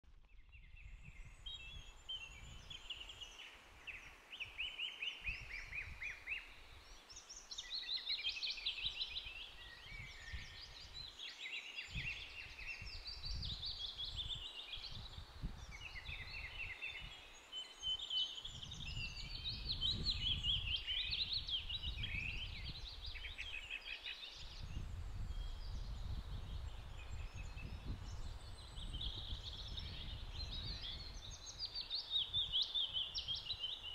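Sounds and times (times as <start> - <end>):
wind rumbling on microphone: 0.0 - 7.8, 8.5 - 33.9
songbirds chirping and trilling: 0.2 - 33.9.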